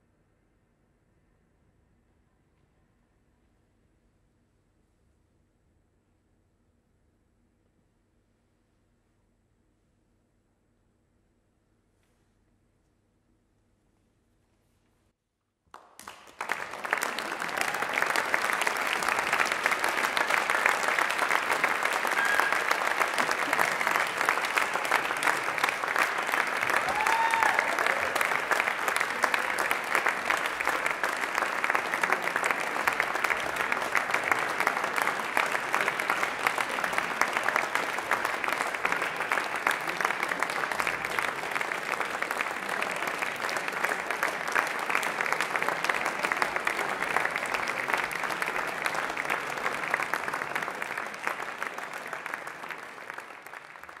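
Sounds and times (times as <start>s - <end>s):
audience applauding: 15.7s - 54.0s.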